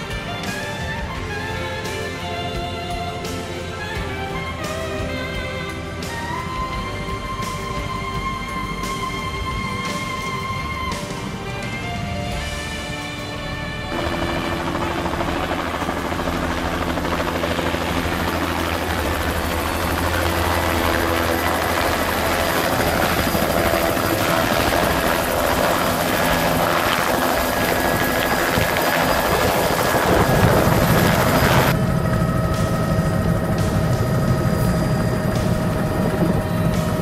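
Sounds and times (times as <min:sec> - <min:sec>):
helicopter turbine and rotor: 0:00.0 - 0:37.0.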